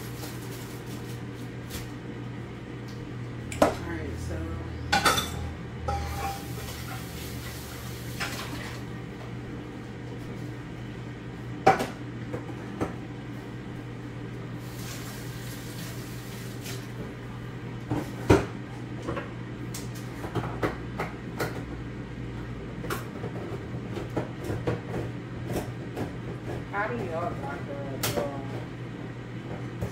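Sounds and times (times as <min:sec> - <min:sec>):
pots and dishes clinking: 0:04.9 - 0:07.1.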